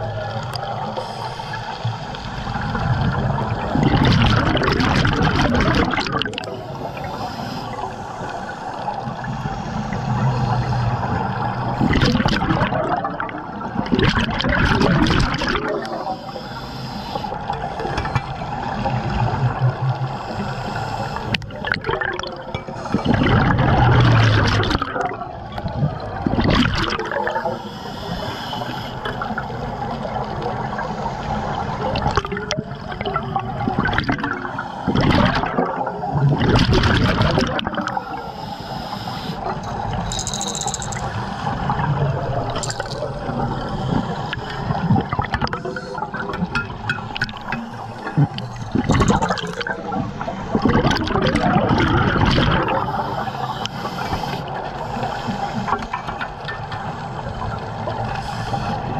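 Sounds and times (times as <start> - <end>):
gurgling exhaled bubbles: 0.0 - 16.2, 21.1 - 27.6, 29.0 - 38.2, 39.4 - 53.6
steady watery rush: 0.0 - 58.9
diver breathing through regulator: 0.9 - 2.7, 6.5 - 11.1, 15.8 - 18.2, 20.0 - 21.5, 22.6 - 23.4, 27.4 - 29.3, 38.0 - 41.8, 47.4 - 49.4, 52.8 - 56.2, 58.0 - 58.9.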